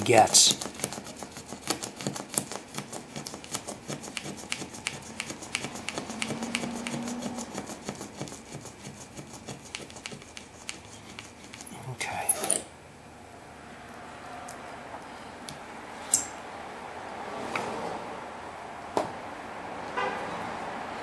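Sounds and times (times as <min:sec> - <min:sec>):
razor blade scraping glass: 0:00.3 - 0:12.7.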